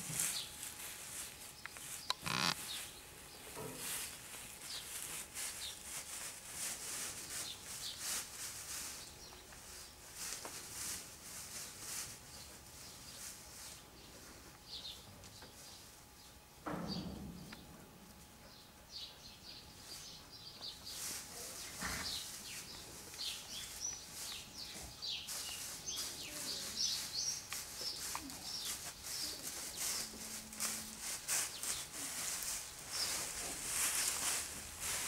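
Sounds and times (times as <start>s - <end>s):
small birds chirping: 1.5s - 3.5s, 18.5s - 34.4s.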